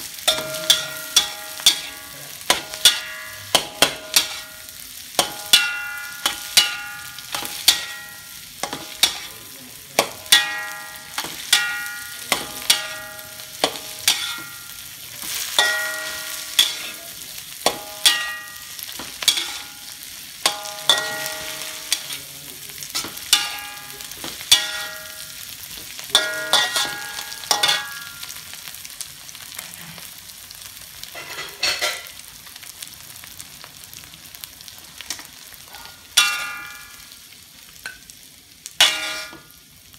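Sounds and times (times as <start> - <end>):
food sizzling: 0.0 - 39.9
spatula clanging against metal wok: 0.1 - 28.6, 31.1 - 32.2, 35.0 - 37.2, 38.8 - 39.6.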